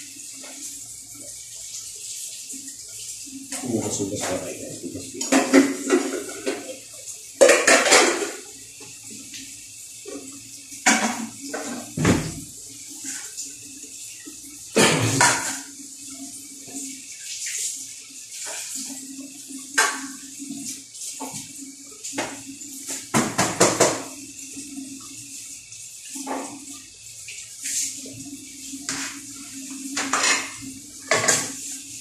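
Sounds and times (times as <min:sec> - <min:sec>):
running water: 0:00.0 - 0:32.0
dishes clattering in sink: 0:03.5 - 0:08.9, 0:10.1 - 0:12.5, 0:14.7 - 0:15.7, 0:19.7 - 0:20.6, 0:22.2 - 0:24.2, 0:26.2 - 0:26.8, 0:28.8 - 0:31.8.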